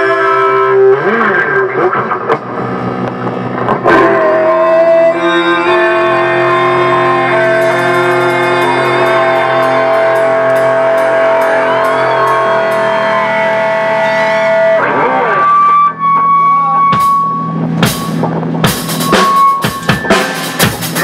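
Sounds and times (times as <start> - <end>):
electric guitar chord ringing: 2.4 - 18.3.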